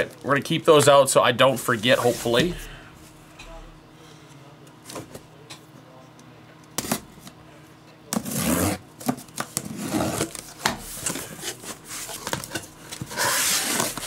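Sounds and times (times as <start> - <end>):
card packs rustling and sliding: 1.7 - 2.8, 8.2 - 14.0.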